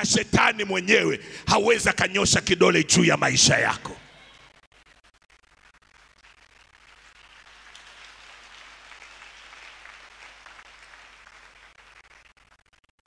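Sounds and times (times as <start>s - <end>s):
congregation applauding: 3.6s - 12.9s.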